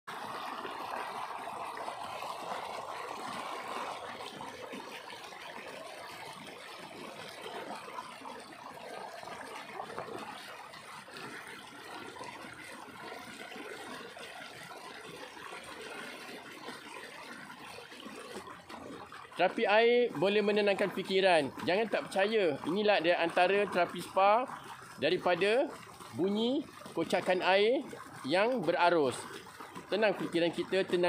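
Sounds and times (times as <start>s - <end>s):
stream rushing and splashing: 0.1s - 12.3s, 13.5s - 31.0s.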